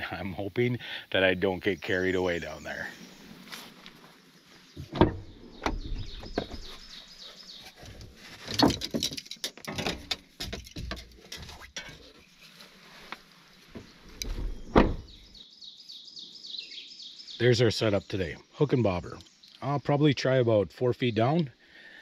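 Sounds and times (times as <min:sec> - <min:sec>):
small birds chirping: 0:00.0 - 0:22.0
irregular knocks and clunks: 0:04.8 - 0:06.8, 0:07.7 - 0:12.1, 0:13.7 - 0:15.2.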